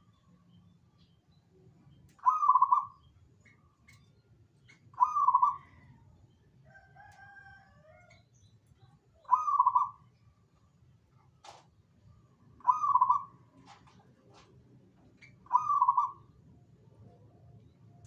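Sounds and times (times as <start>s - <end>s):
dove cooing: 2.2s - 2.9s, 5.0s - 6.0s, 9.3s - 10.0s, 12.6s - 13.8s, 15.4s - 16.2s.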